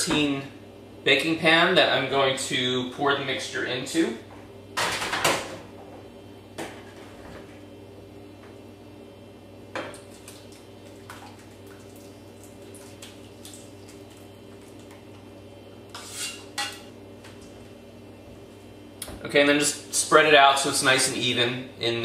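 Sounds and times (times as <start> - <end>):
steady low hum: 0.0 - 22.0
spoon scraping steel pot: 16.0 - 16.7.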